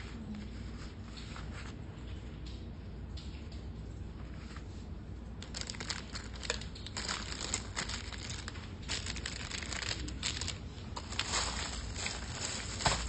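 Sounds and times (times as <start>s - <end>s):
plastic bag crinkling: 5.4s - 13.0s.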